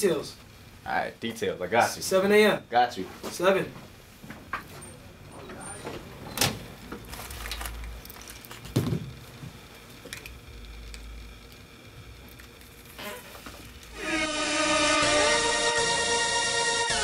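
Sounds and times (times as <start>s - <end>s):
paper rustling: 6.8s - 8.8s.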